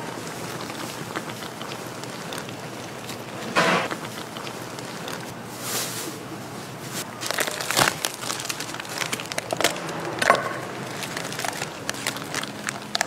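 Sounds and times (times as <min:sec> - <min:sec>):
plastic packaging crinkling: 0:06.9 - 0:13.0.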